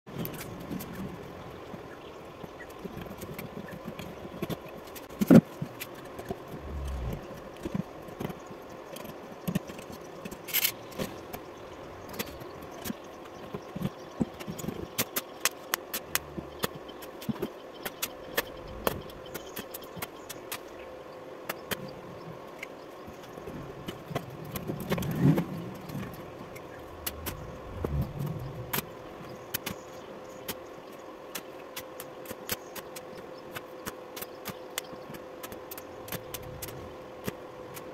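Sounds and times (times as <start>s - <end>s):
faint steady hum: 0.1s - 37.9s
welding arc crackling: 24.7s - 29.0s.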